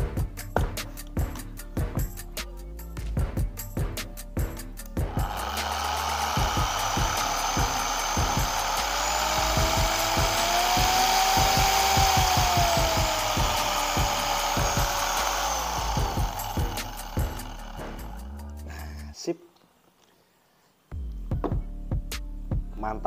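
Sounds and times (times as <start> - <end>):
polisher motor whine: 5.1 - 18.4.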